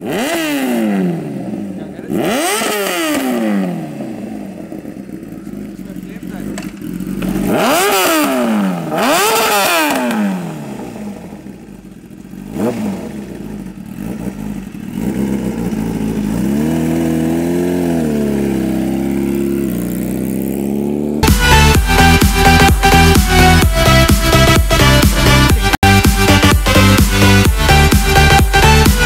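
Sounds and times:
motorcycle engine revving: 0:00.0 - 0:29.0
motorcycle pulling away: 0:00.0 - 0:29.0.

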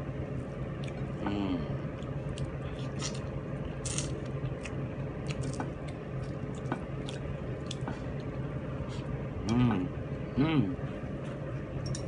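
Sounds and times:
steady low hum: 0:00.0 - 0:12.0
wet chewing and lip smacks: 0:03.9 - 0:08.3.

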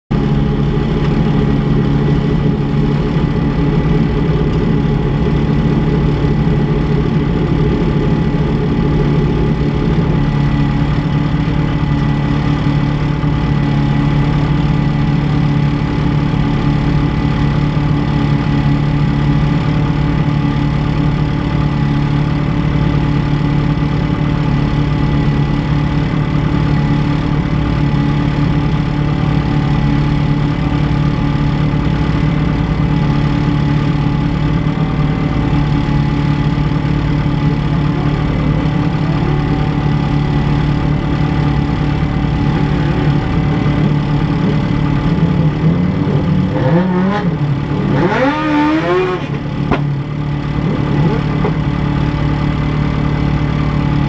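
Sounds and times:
race car engine idling: 0:00.1 - 0:54.0.

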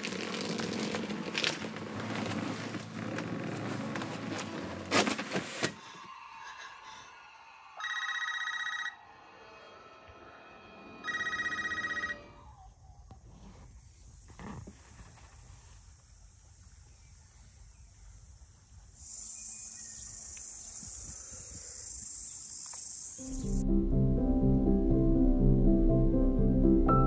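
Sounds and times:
telephone ringing electronic trill: 0:07.8 - 0:09.0, 0:11.0 - 0:12.4.

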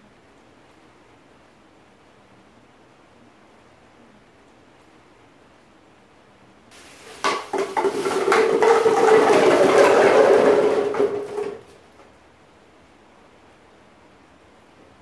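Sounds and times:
hard objects clattering and rattling: 0:06.8 - 0:11.8.

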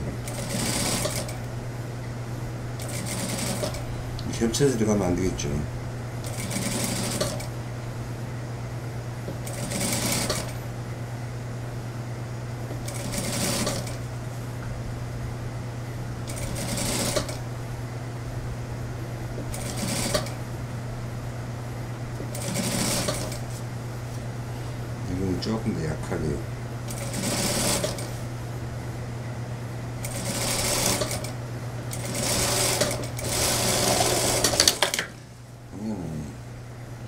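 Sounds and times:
steady machine hum: 0:00.0 - 0:37.0
sewing machine stitching: 0:00.3 - 0:01.4, 0:02.8 - 0:03.8, 0:06.2 - 0:07.5, 0:09.4 - 0:10.6, 0:12.9 - 0:14.0, 0:16.3 - 0:17.4, 0:19.5 - 0:20.3, 0:22.3 - 0:23.4, 0:26.9 - 0:28.1, 0:30.0 - 0:31.3, 0:31.9 - 0:35.1.

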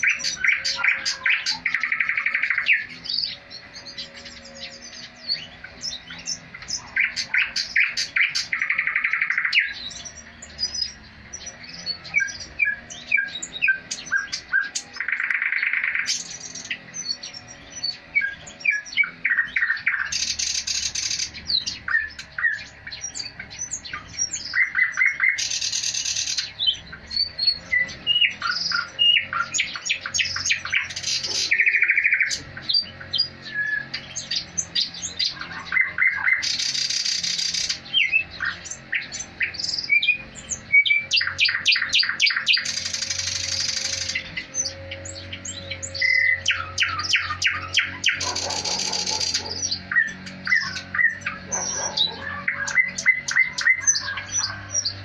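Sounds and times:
harsh rattling bird trill: 0:00.0 - 0:55.0
bird singing clicks and whistles: 0:27.7 - 0:32.9, 0:36.0 - 0:44.7.

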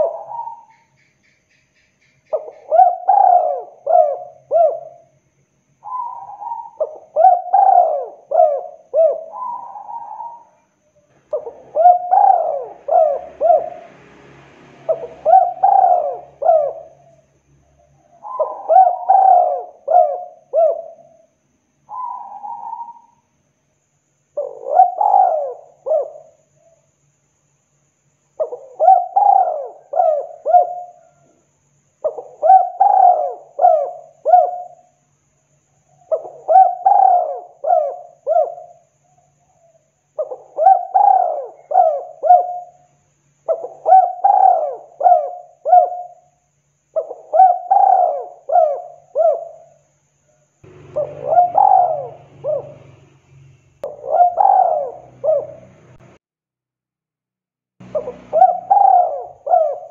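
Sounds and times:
dove cooing: 0:00.0 - 0:00.9, 0:02.3 - 0:05.1, 0:05.8 - 0:14.0, 0:14.8 - 0:21.3, 0:21.9 - 0:23.2, 0:24.4 - 0:26.9, 0:28.4 - 0:31.4, 0:32.0 - 0:34.9, 0:35.9 - 0:46.3, 0:46.9 - 0:49.8, 0:50.7 - 0:53.1, 0:53.8 - 0:56.1, 0:57.9 - 0:59.9.

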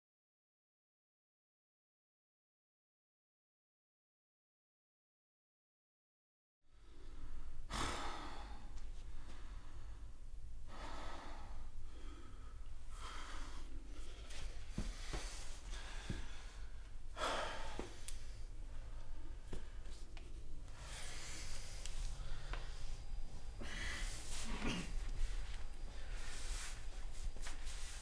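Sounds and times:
low room hum: 0:06.7 - 0:28.0
man breathing heavily: 0:06.7 - 0:28.0.

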